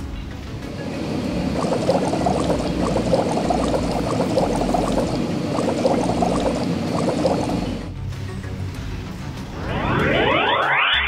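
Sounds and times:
cartoon bubbling sudsy liquid: 0:00.9 - 0:07.9.

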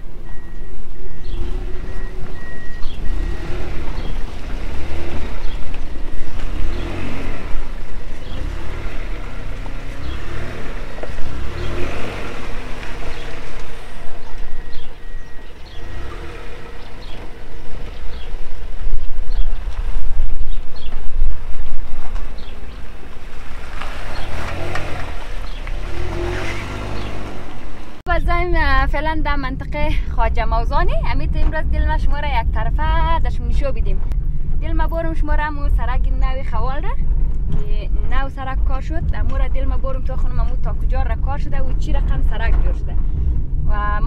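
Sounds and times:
steady low rumble: 0:00.0 - 0:23.9, 0:27.3 - 0:44.0
car engine revving: 0:00.0 - 0:28.1.

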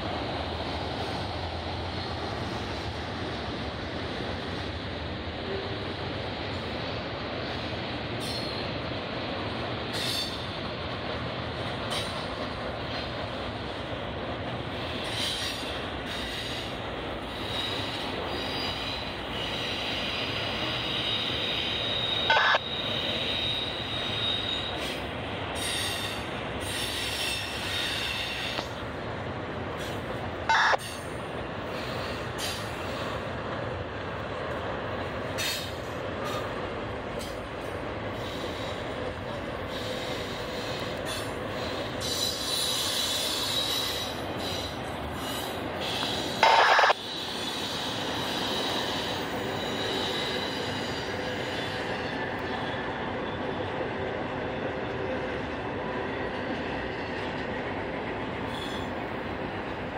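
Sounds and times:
train wheels rumbling on rails: 0:00.0 - 0:59.9
high wheel squeals: 0:17.3 - 0:25.0, 0:39.7 - 0:52.9.

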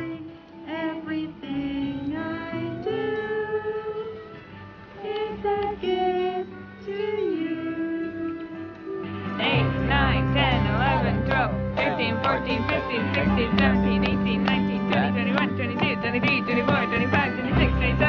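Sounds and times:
acoustic guitar: 0:00.0 - 0:18.0
girl singing: 0:05.0 - 0:18.0.

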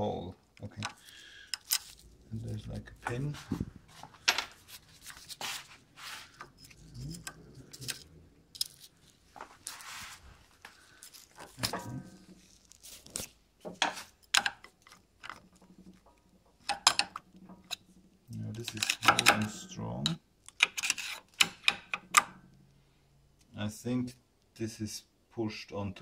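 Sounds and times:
screwdriver prying among steel balls: 0:00.8 - 0:02.0, 0:03.0 - 0:05.4, 0:06.3 - 0:09.1, 0:13.7 - 0:18.0, 0:18.6 - 0:22.4
small metal parts clinking: 0:00.8 - 0:02.1, 0:04.1 - 0:05.4, 0:06.4 - 0:09.2, 0:18.6 - 0:19.7.

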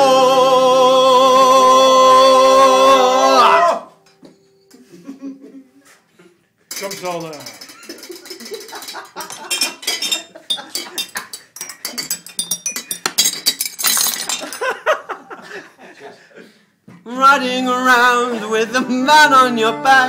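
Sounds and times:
person whooping: 0:00.0 - 0:04.0
china teacups clinking: 0:06.7 - 0:14.7.

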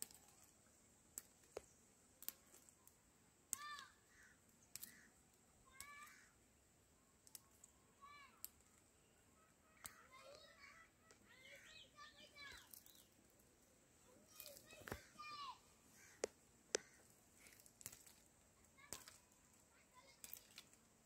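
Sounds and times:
small sharp clicks: 0:00.0 - 0:03.9, 0:04.6 - 0:05.1, 0:05.7 - 0:06.2, 0:07.2 - 0:07.8, 0:08.4 - 0:08.9, 0:09.8 - 0:11.2, 0:18.8 - 0:19.3
faint bird chirping: 0:03.6 - 0:17.7.

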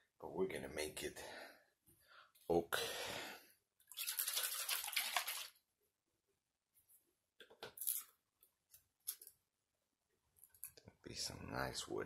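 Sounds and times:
liquid sloshing in shaken can: 0:03.9 - 0:05.6.

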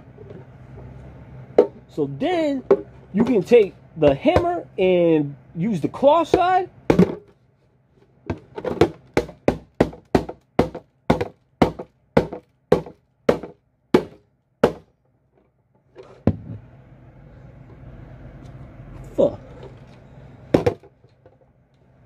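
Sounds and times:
hammer striking plastic box: 0:04.1 - 0:04.6, 0:06.3 - 0:07.3, 0:08.3 - 0:14.9, 0:20.6 - 0:20.9.

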